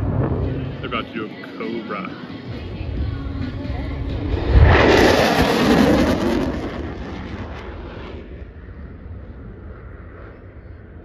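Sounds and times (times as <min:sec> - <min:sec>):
pyrotechnic explosion boom: 0:00.0 - 0:00.8.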